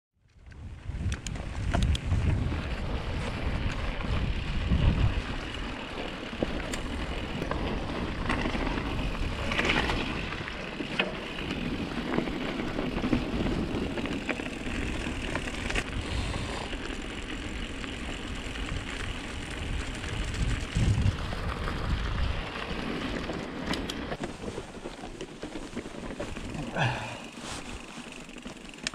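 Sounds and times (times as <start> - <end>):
bike clicks and rattles: 0.2 - 28.9
wind buffeting microphone: 0.4 - 5.7, 18.5 - 22.8
bike tyres hissing on snow: 1.4 - 8.1, 8.7 - 23.0, 24.2 - 28.9.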